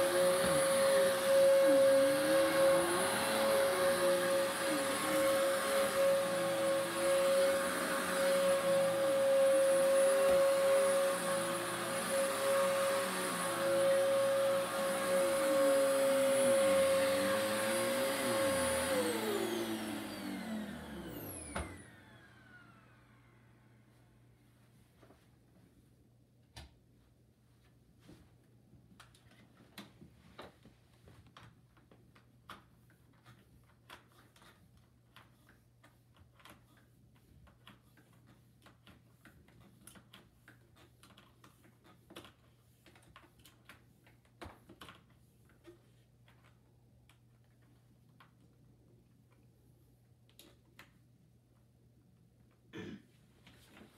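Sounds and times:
hands handling plastic vacuum cleaner: 0.0 - 22.2, 28.0 - 49.5
vacuum cleaner motor whine: 0.0 - 24.1.

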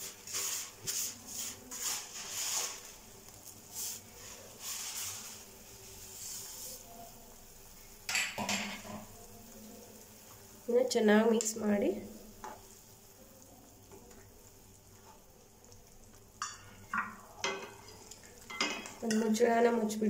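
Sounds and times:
kitchenware clatter: 8.1 - 9.1, 16.4 - 19.4.

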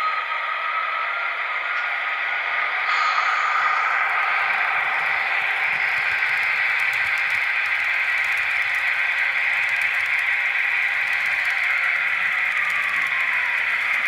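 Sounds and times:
model train motors whirring: 3.8 - 14.0
clicking over rail joints: 4.5 - 14.0.

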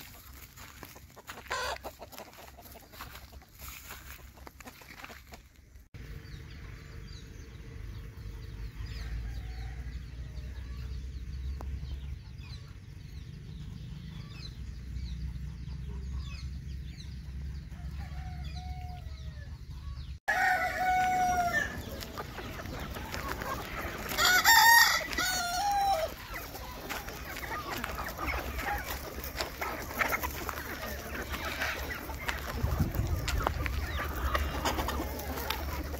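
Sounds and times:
chickens clucking: 0.0 - 35.9
chicks peeping: 0.0 - 35.9
rooster crowing: 20.3 - 21.8, 24.2 - 26.1.

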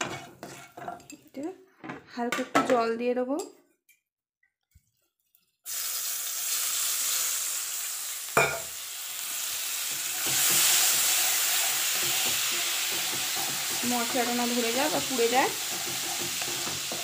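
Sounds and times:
spices sizzling in hot oil: 0.0 - 1.4, 5.1 - 17.0.

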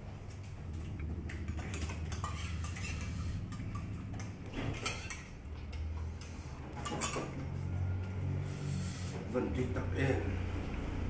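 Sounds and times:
steady low hum: 0.0 - 11.0
steel dishes clinking: 4.6 - 5.4, 6.8 - 7.4.

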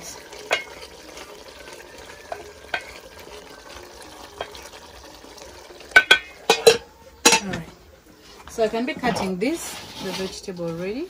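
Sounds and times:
soup simmering: 0.0 - 10.5
spoon knocking metal pot: 0.5 - 0.8, 2.3 - 3.0, 5.9 - 7.7.

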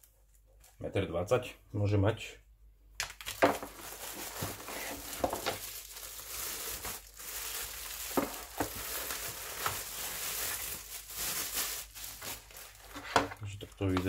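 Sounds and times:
plastic bag rustling: 3.2 - 14.0.

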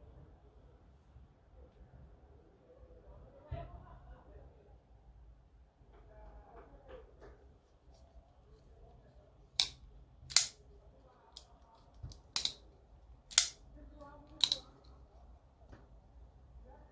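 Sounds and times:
folding knife lock clicking: 9.6 - 10.6, 13.3 - 13.6.

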